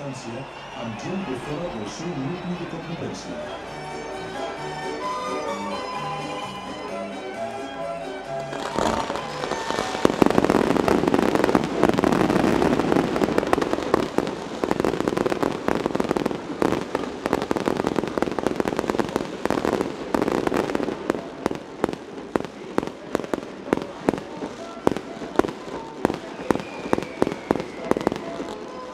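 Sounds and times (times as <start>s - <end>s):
firecracker barrage bangs: 8.5s - 28.9s.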